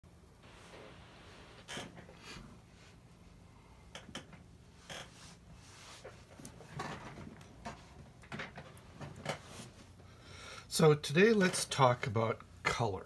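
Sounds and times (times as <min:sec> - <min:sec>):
faint clicks and rustles: 0:00.4 - 0:10.1.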